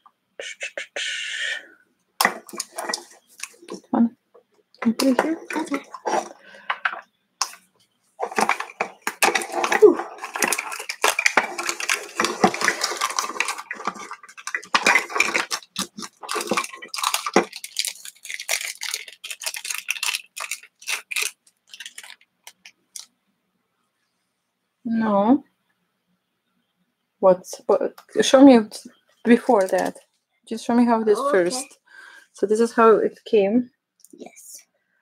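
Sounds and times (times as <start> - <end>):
plastic wrappers crinkling and tearing: 2.2 - 3.9, 4.8 - 23.1, 29.3 - 30.1
plastic capsule pieces clicking: 8.2 - 23.1, 29.4 - 30.0.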